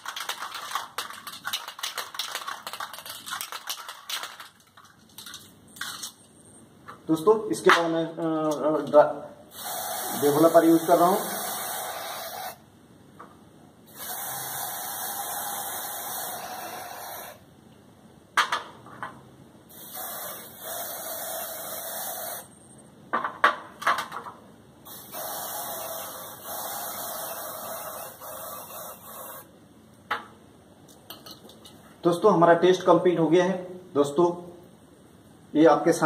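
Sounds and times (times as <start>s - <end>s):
aerosol can spraying: 9.5s - 12.6s, 13.9s - 17.4s, 19.7s - 22.5s, 24.9s - 29.5s.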